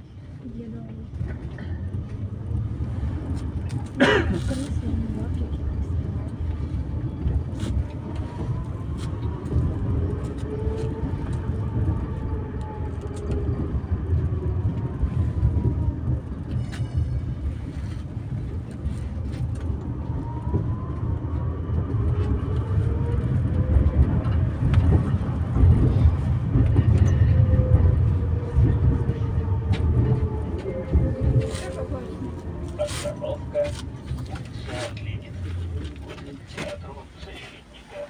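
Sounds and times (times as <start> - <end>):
tram wheels rumbling on rails: 0.0 - 38.0.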